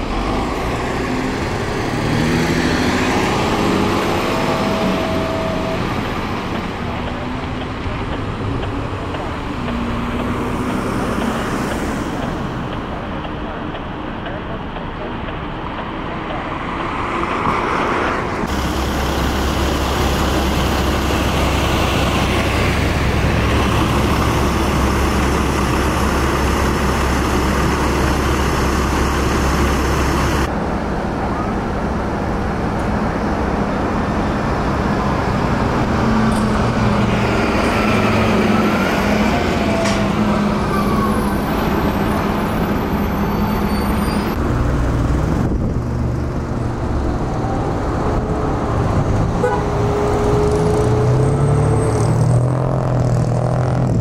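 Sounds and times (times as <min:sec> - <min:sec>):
diesel engines running: 0:00.0 - 0:54.0
tyre and road noise: 0:00.0 - 0:54.0
faint siren rising and falling: 0:36.8 - 0:42.4.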